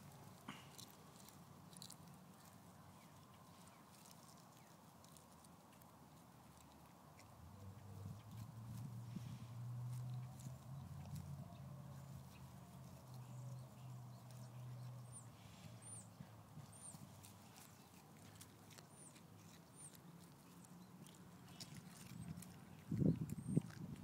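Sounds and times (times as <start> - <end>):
dog chewing eggshell: 0.0 - 9.0, 16.6 - 24.0.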